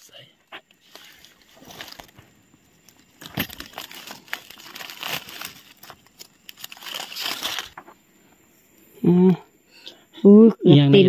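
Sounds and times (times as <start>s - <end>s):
dry leaves rustling and crackling: 0.8s - 7.9s.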